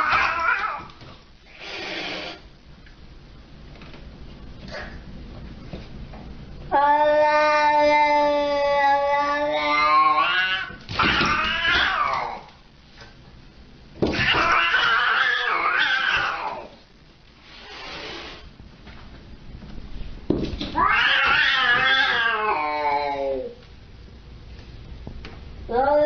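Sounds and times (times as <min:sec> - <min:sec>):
cat yowling: 0:00.0 - 0:00.9, 0:06.8 - 0:12.5, 0:14.2 - 0:16.7, 0:20.8 - 0:23.6.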